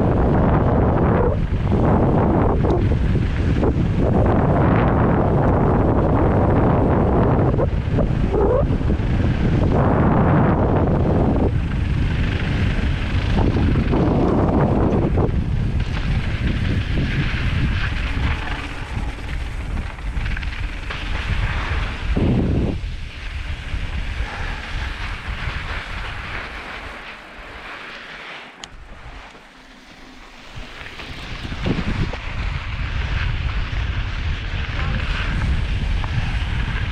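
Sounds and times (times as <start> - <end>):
wind buffeting microphone: 0.0 - 27.7, 28.6 - 36.9
tyres crunching on loose dirt: 9.0 - 36.9.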